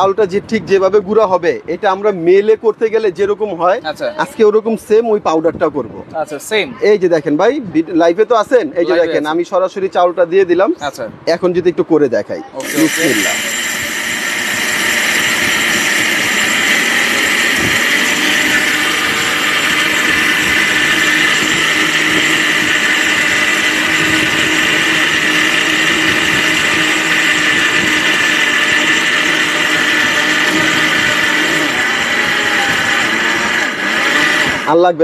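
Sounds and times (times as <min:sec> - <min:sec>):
mixer grinder grinding rice: 0:12.6 - 0:35.0.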